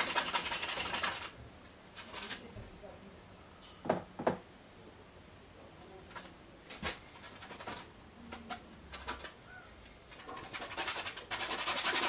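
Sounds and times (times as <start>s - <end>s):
bristle brush scrubbing canvas: 0.0s - 1.4s, 10.1s - 12.0s.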